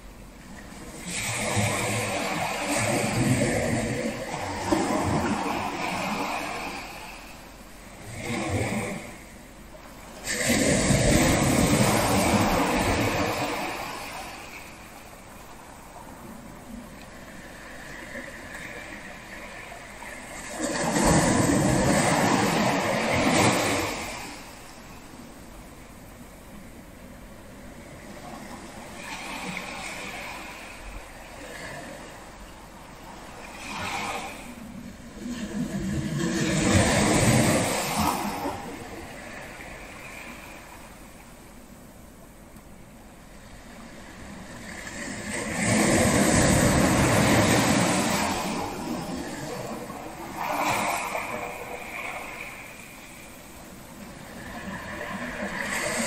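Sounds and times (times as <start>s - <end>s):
low hiss of sea: 0.0s - 56.0s
wave breaking on beach: 0.8s - 7.3s, 10.2s - 14.9s, 17.3s - 24.7s, 35.2s - 41.0s, 43.7s - 56.0s.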